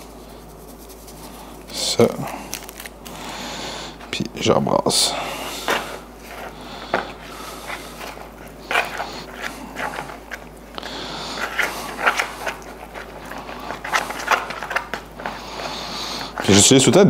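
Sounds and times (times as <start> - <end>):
spoon scraping plastic bowl: 7.6 - 10.5, 11.2 - 16.6.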